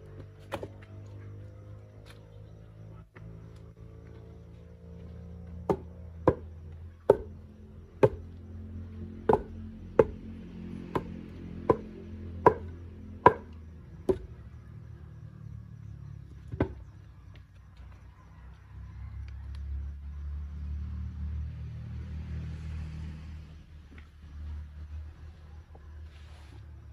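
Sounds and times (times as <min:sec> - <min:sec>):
heavy tamping blows on stone: 0:09.3 - 0:10.2, 0:10.9 - 0:13.5.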